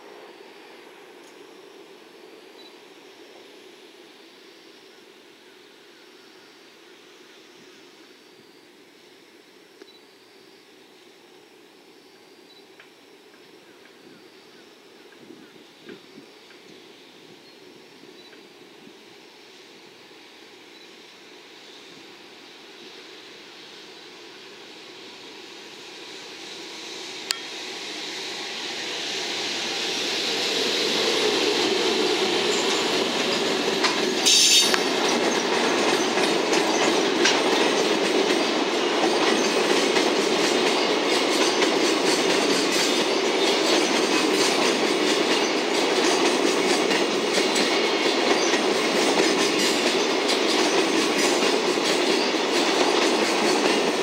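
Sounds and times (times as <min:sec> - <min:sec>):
freight train passing: 0:00.0 - 0:54.0
wheels clickety-clack over rail joints: 0:31.1 - 0:54.0.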